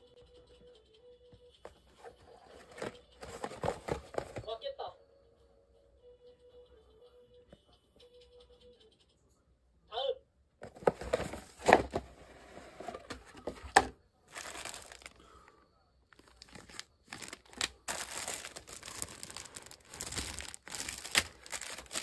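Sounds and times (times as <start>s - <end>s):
plastic bags crinkling: 12.9s - 15.5s, 16.1s - 22.0s.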